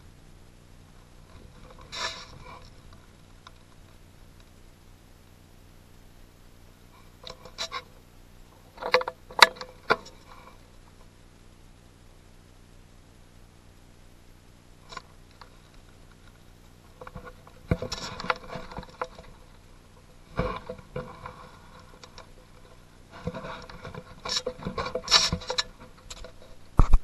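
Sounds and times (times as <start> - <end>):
handling rustles crackles and clicks: 1.2 - 4.6, 6.9 - 11.1, 14.9 - 27.0.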